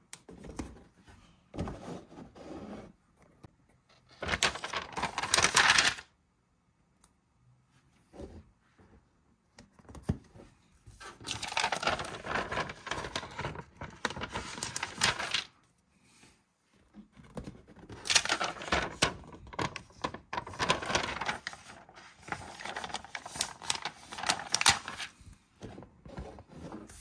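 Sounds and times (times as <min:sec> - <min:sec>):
plastic sheet crinkling: 0:04.2 - 0:06.1, 0:11.2 - 0:15.5, 0:17.9 - 0:25.3.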